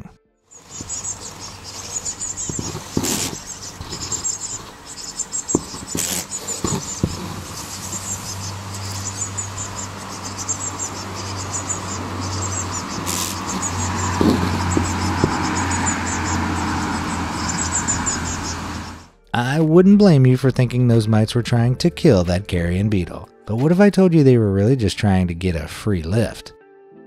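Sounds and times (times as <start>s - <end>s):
fast high-pitched chirps: 0.6s - 19.1s
steady low hum: 0.6s - 19.2s.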